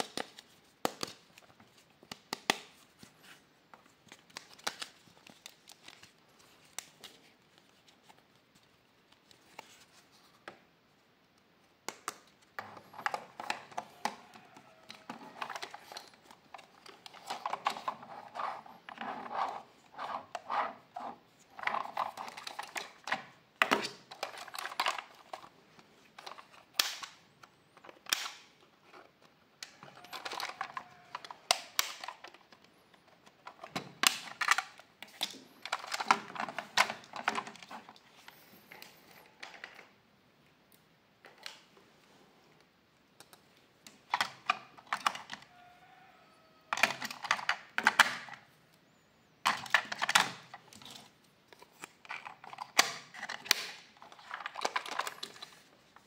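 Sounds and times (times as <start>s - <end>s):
plastic toy clicks and rattles: 29.8s - 32.6s, 33.4s - 37.8s, 46.7s - 48.4s, 49.5s - 51.0s, 52.0s - 55.7s.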